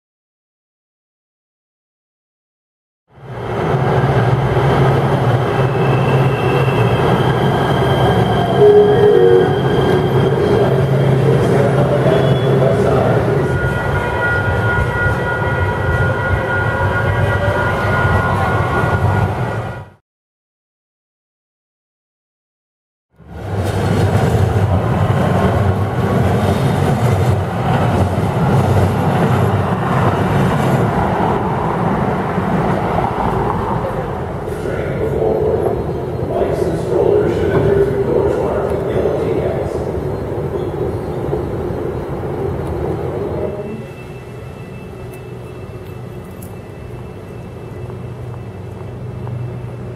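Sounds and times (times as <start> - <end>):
city street noise: 3.1 - 20.0, 23.1 - 49.9
high whining tones: 8.6 - 10.9
train wheels rumbling on rails: 23.2 - 49.9.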